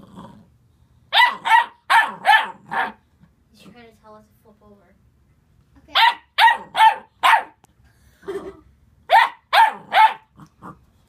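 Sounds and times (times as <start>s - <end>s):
puppy grumbling: 0.0s - 0.6s, 9.7s - 10.9s
puppy barking: 1.1s - 3.0s, 5.9s - 7.6s, 9.1s - 10.4s.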